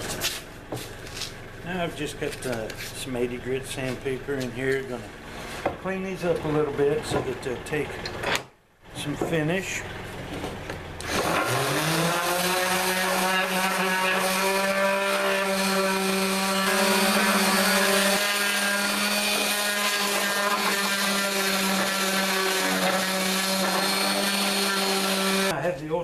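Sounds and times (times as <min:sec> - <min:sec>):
orbital sander running: 0:11.0 - 0:25.6.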